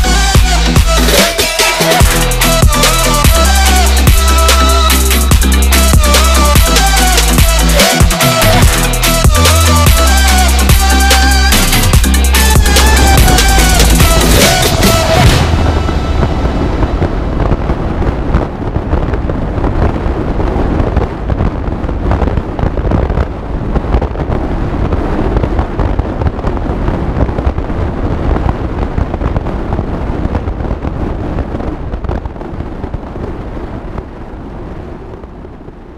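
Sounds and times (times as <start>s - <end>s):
car engine roar: 0.0s - 20.5s
wind buffeting microphone: 8.6s - 35.9s.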